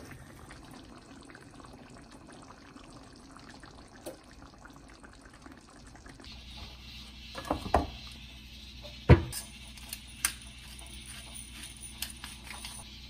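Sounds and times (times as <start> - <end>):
steam hissing: 6.3 - 12.1
thin high whine: 6.3 - 13.0.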